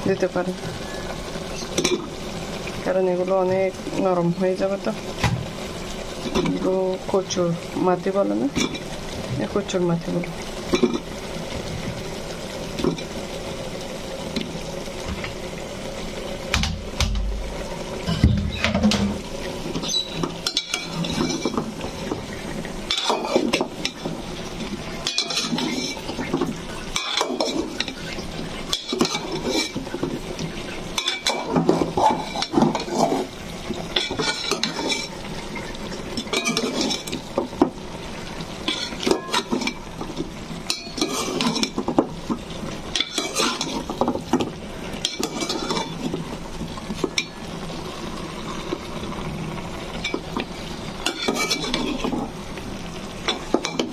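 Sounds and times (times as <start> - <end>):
metal spatula scraping a pot: 19.7 - 21.9, 22.9 - 24.1, 25.0 - 30.1, 30.9 - 35.4, 36.1 - 37.3, 38.6 - 40.0, 40.6 - 42.0, 42.9 - 44.2, 45.0 - 46.2, 51.0 - 52.3.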